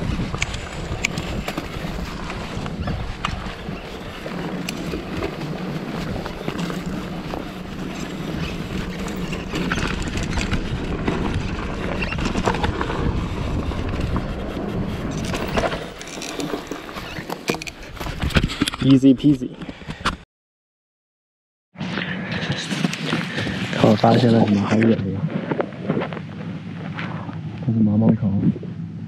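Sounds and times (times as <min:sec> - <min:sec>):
wind on microphone: 0:00.0 - 0:18.8, 0:21.8 - 0:29.0
bike tyres rolling on dirt: 0:00.0 - 0:18.9
bike rattling clicks: 0:00.3 - 0:11.4, 0:13.8 - 0:18.9.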